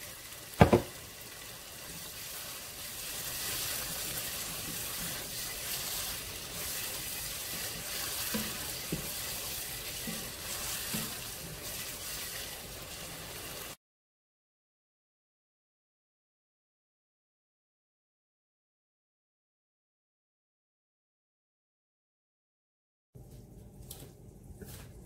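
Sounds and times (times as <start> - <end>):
sauce sizzling in oil: 0.0 - 13.8
spoon knocking against pot: 0.6 - 1.0
wooden spoon stirring: 2.9 - 12.6.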